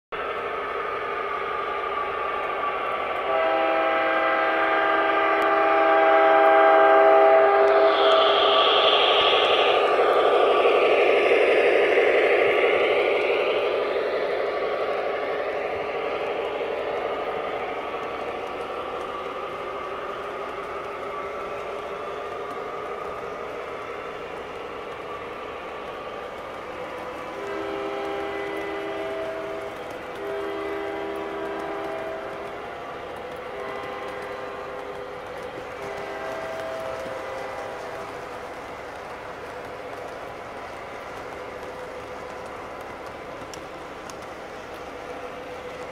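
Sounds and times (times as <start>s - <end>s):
model train rumble: 0.2s - 45.9s
model train air horn blast: 3.2s - 8.3s, 27.4s - 32.4s.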